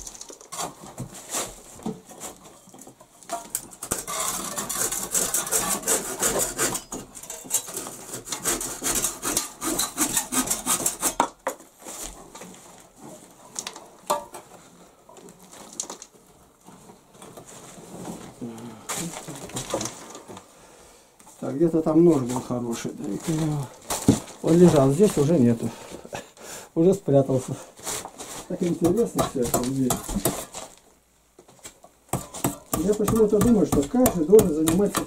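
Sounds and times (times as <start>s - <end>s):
scrapes and knocks: 0.0s - 20.5s, 22.0s - 26.0s, 27.8s - 30.8s
hand saw cutting brick: 3.8s - 11.4s, 32.2s - 35.0s.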